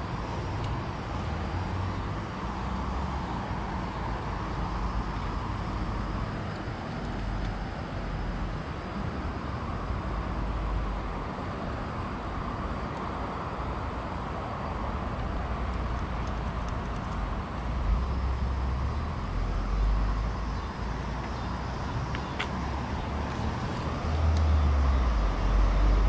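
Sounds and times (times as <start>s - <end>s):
vehicle passing rumble: 0.0s - 14.2s, 14.8s - 26.0s
road traffic hum: 0.0s - 26.0s.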